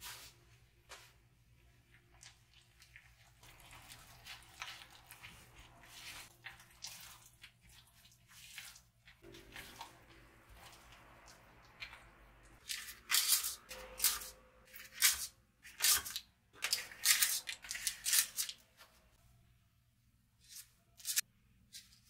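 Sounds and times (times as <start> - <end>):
stirring batter in a bowl: 1.8 - 18.1
paper muffin liners crinkling: 12.6 - 18.9.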